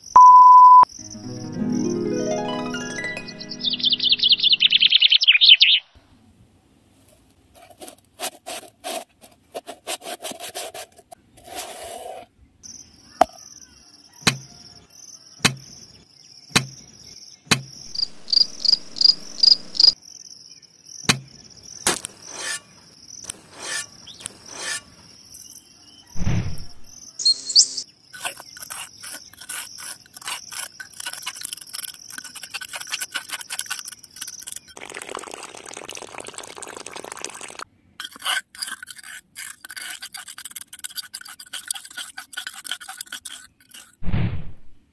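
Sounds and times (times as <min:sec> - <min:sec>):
crickets chirping: 0:12.6 - 0:26.2
metal spatula scraping gravel: 0:21.9 - 0:22.7, 0:23.4 - 0:24.9, 0:28.2 - 0:34.7, 0:38.0 - 0:44.0.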